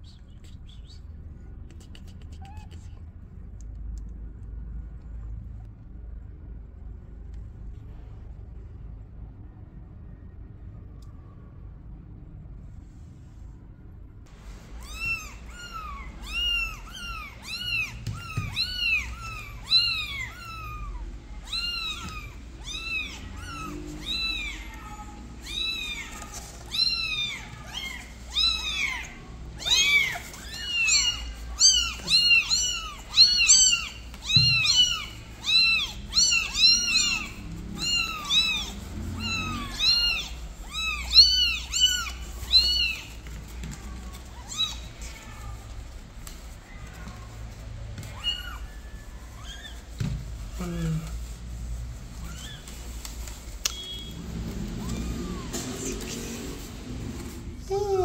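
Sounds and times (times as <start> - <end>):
newborn kittens mewing: 14.8 - 47.4, 48.0 - 51.2, 52.1 - 53.0, 54.6 - 56.6.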